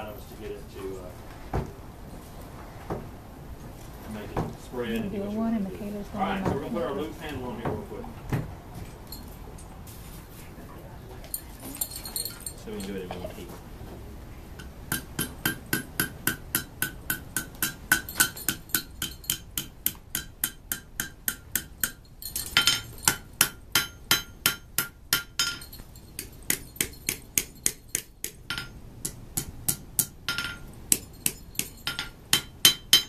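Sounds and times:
hammer striking steel on anvil: 14.6s - 33.0s
anvil ringing: 14.9s - 28.8s, 29.4s - 33.0s.

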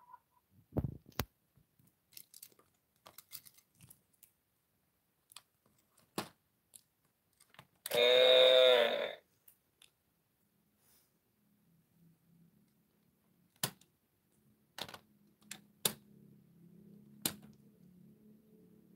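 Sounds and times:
electronic toy sound effect: 7.9s - 9.2s.

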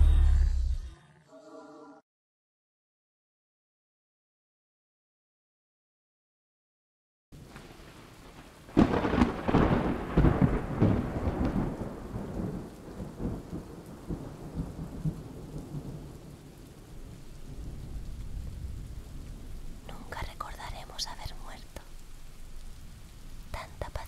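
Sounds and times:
thunder clap and rumble: 7.4s - 20.4s
steady rain: 7.4s - 24.0s.

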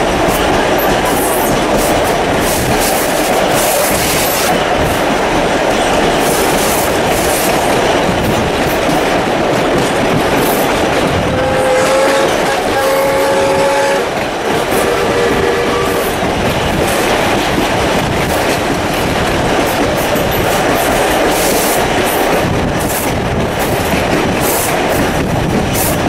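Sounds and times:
carriages clattering on track: 0.0s - 26.0s
steam locomotive whistle: 11.3s - 16.2s.

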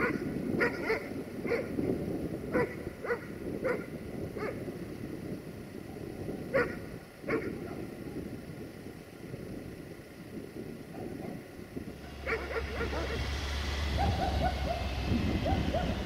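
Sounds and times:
dog barking: 0.0s - 1.8s, 2.5s - 4.6s, 6.5s - 7.8s, 12.2s - 13.3s, 13.9s - 16.0s
low rumble: 0.0s - 16.0s.

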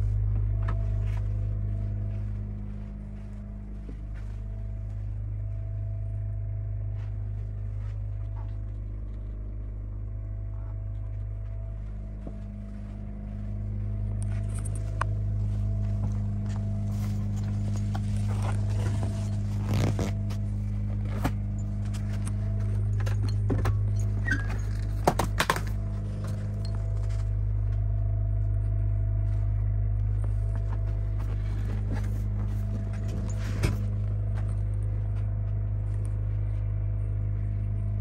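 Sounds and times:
low machine hum: 0.0s - 38.0s
gloved hand rubbing leather seat: 15.2s - 22.2s.

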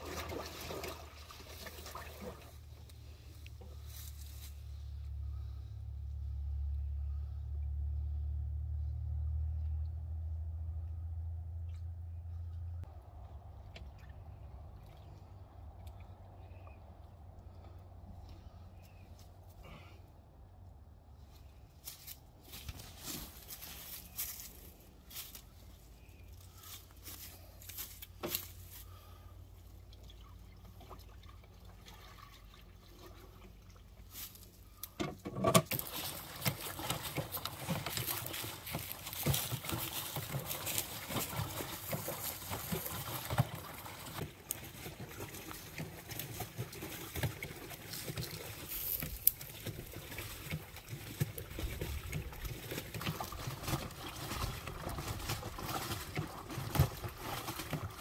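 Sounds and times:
water and laundry sloshing: 0.0s - 5.5s, 13.0s - 17.7s, 22.4s - 58.0s.

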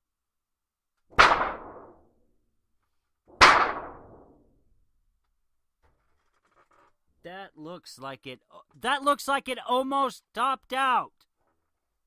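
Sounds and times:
metal thunder sheet crashing: 3.4s - 4.3s.

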